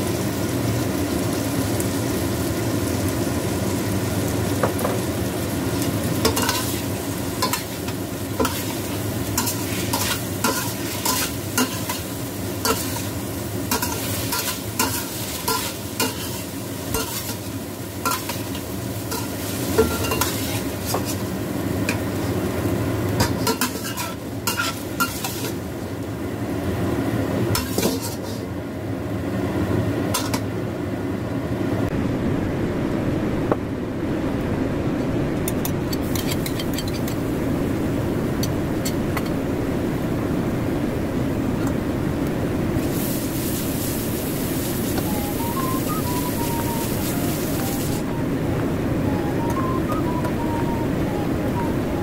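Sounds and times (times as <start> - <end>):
chicken sizzling in oil: 0.0 - 28.5, 42.8 - 48.1.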